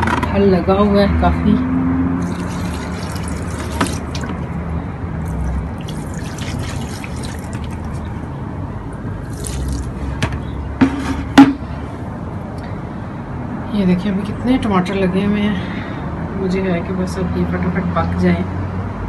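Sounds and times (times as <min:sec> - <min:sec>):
water pouring onto soil: 0:02.2 - 0:04.5, 0:05.2 - 0:08.2, 0:09.2 - 0:10.2.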